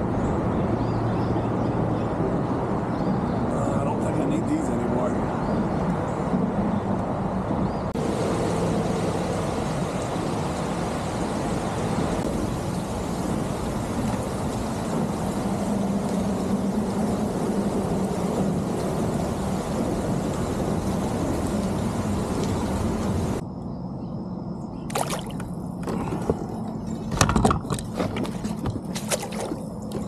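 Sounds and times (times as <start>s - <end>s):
wind buffeting microphone: 0.0s - 23.4s
rain hiss: 7.9s - 23.4s.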